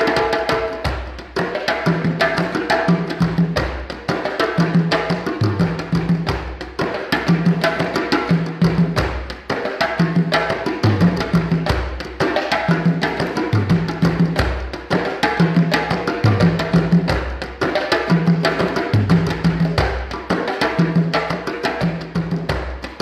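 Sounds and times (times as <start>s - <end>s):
hand drums fast rhythm: 0.0s - 23.0s.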